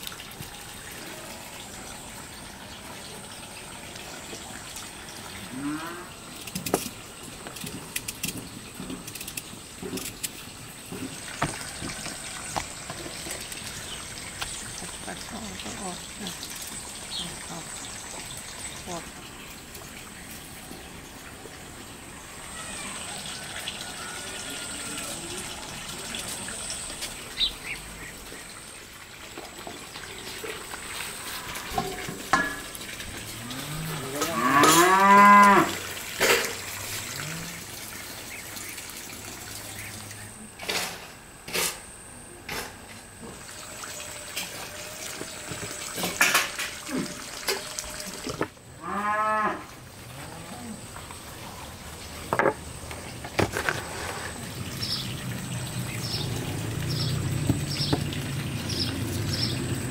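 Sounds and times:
cow mooing: 5.5 - 6.2, 33.4 - 35.8, 37.1 - 37.7, 48.8 - 50.8.

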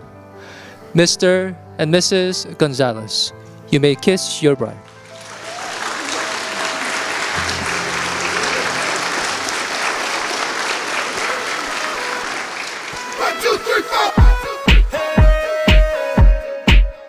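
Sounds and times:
crowd applauding: 5.0 - 14.2.

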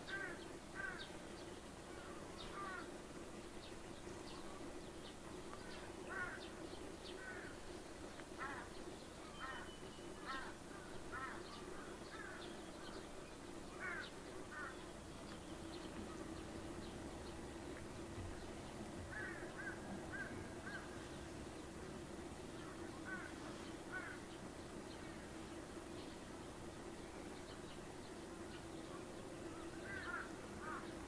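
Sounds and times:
birds calling: 0.0 - 31.0.

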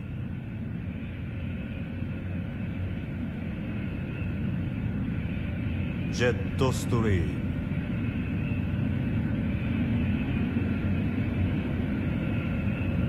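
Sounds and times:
faint turbine whine: 0.0 - 13.0
jet engines rumbling: 0.0 - 13.0.

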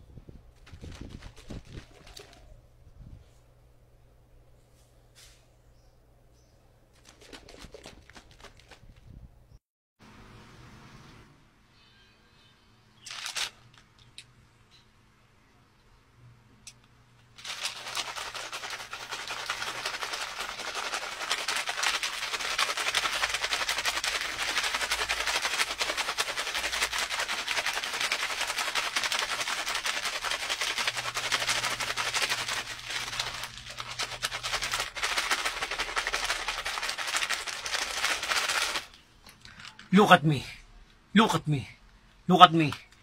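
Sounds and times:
plastic wrapper crinkling: 13.0 - 13.9, 17.4 - 39.8.

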